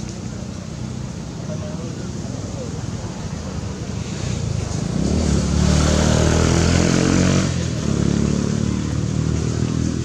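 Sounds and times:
vehicle engine passing: 4.1s - 10.0s.

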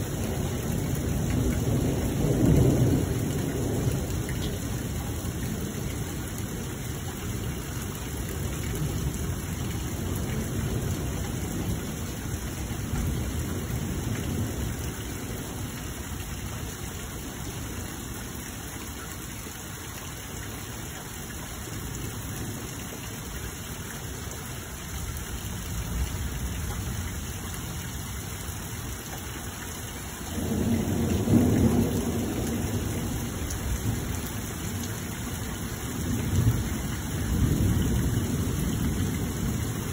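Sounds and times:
thunder rumbling: 0.0s - 7.6s, 30.3s - 35.0s, 35.7s - 39.9s
rain hissing: 0.0s - 39.9s.

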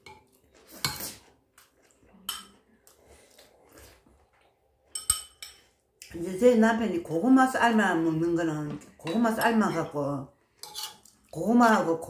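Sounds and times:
metal spoon clinking ceramic bowl: 4.9s - 5.7s.

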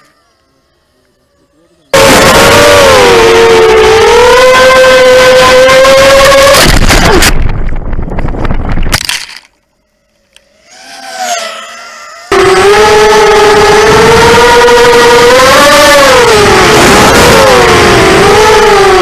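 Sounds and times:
quadcopter motors whining: 0.0s - 7.3s, 9.6s - 19.0s
drone tumbling and scraping: 4.0s - 19.0s
wind rush: 6.4s - 9.1s.

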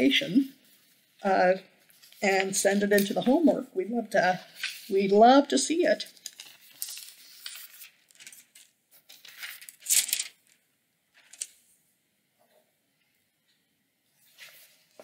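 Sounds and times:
paper rustling: 1.8s - 3.5s, 4.4s - 5.3s, 6.0s - 11.6s, 14.2s - 15.0s.

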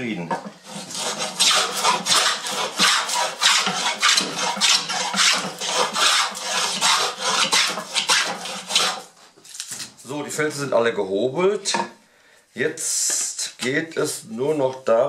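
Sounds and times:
hand plane cutting wood: 0.6s - 9.1s.

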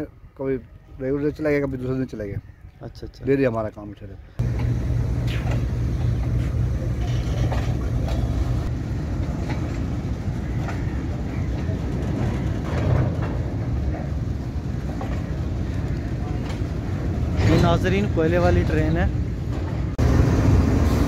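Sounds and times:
metallic clicks of wheels on track: 4.4s - 10.8s
train rumbling on rails: 4.4s - 21.0s.

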